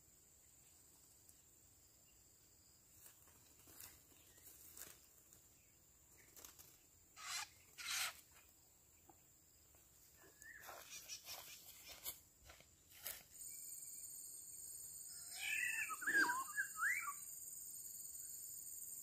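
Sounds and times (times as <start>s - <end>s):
light dry rustles: 2.9s - 5.6s, 9.8s - 13.6s.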